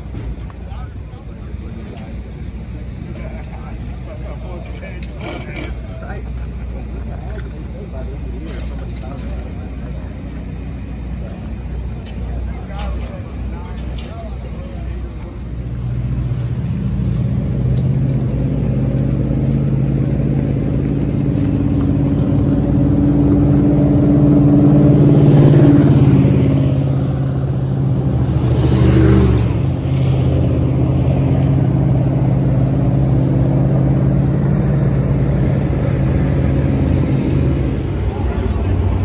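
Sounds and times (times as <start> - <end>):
vehicle engines running: 0.0 - 39.0
vehicle passing close: 12.8 - 39.0.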